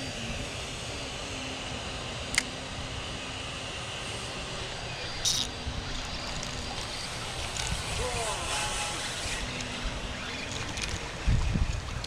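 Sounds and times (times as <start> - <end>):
steady outdoor rumble: 0.0 - 12.0
fishing reel clicks: 5.1 - 11.2.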